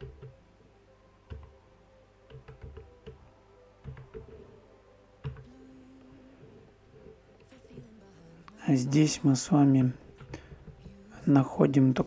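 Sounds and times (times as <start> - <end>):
keyboard keys clicking: 0.0 - 0.4, 1.3 - 1.6, 2.3 - 3.2, 3.8 - 4.5, 5.2 - 5.5.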